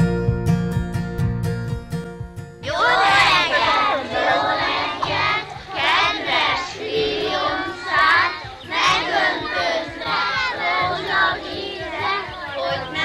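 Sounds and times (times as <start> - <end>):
children singing in unison: 2.6 - 13.0.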